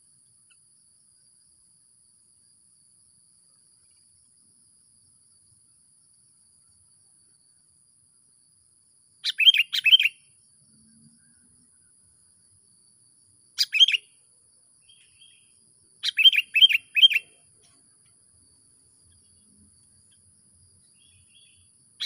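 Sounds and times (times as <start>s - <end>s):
bird decoy chirping: 9.2s - 10.2s, 13.6s - 14.1s, 16.0s - 17.4s.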